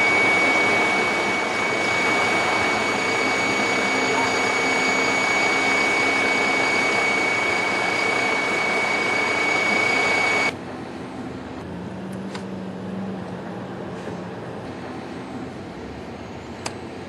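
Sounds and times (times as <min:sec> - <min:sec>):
high steady whine: 0:00.0 - 0:11.7.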